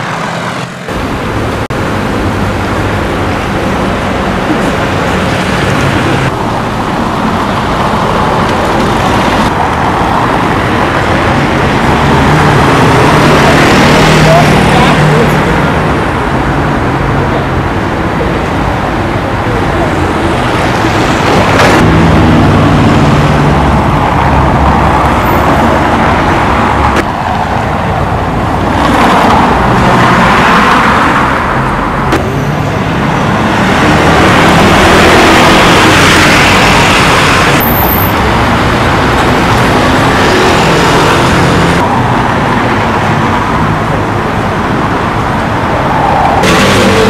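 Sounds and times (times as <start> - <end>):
cars passing: 0.0 - 47.0.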